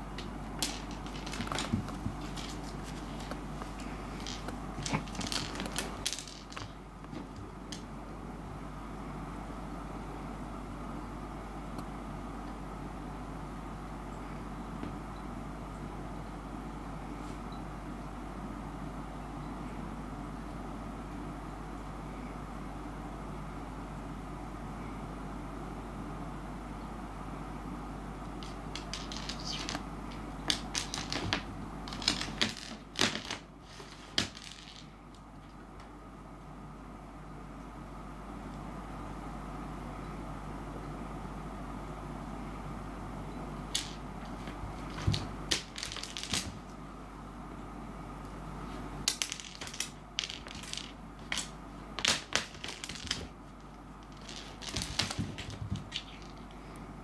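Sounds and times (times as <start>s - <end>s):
seed clicking on wooden floor: 0.2s - 7.9s, 28.4s - 29.8s, 30.4s - 35.2s, 43.8s - 46.7s, 49.1s - 53.4s, 54.0s - 56.5s.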